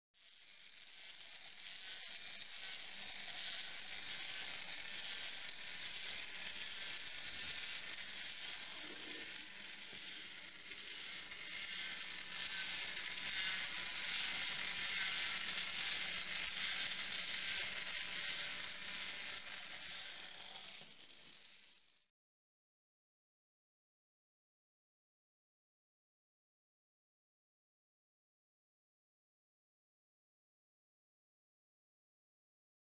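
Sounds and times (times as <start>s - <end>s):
toy electric motor whirring: 0.2s - 22.1s.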